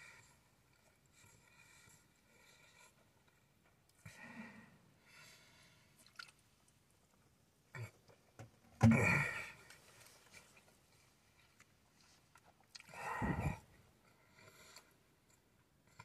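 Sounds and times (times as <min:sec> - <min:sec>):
man chewing and swallowing: 0:06.0 - 0:16.0
throaty closed-mouth vocal sound: 0:12.8 - 0:13.7.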